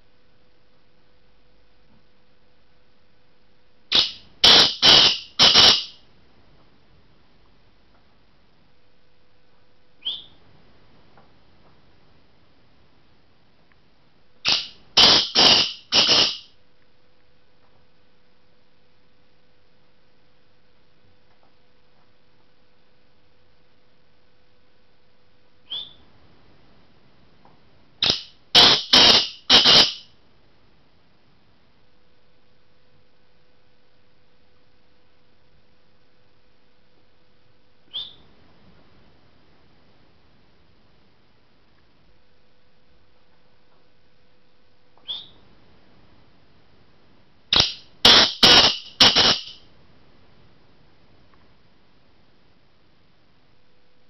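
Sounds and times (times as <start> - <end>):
francolin calling harsh notes: 3.9 - 6.0, 14.4 - 16.5, 28.0 - 30.1, 47.6 - 49.6.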